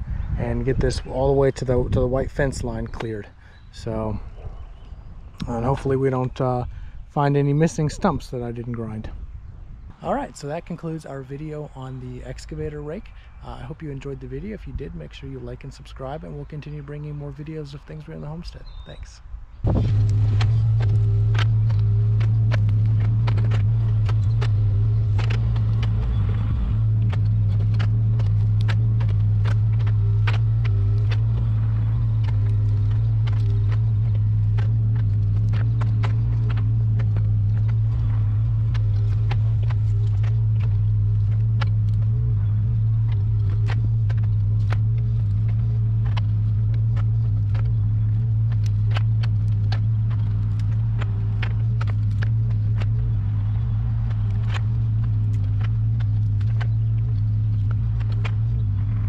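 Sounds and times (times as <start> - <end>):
sticks snapping and dragging: 19.6 - 59.0
excavator diesel engine: 19.7 - 59.0.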